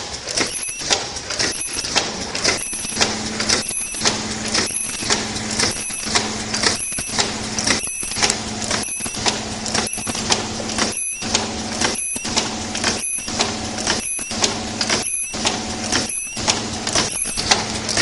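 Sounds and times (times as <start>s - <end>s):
welding machine running: 0.0s - 18.0s.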